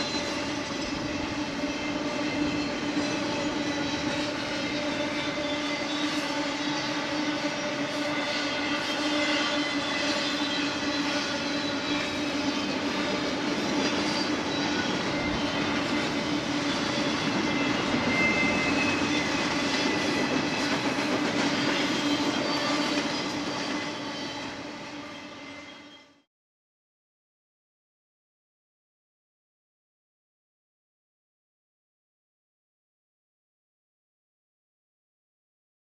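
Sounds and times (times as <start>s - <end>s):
freight train rolling past: 0.0s - 26.2s.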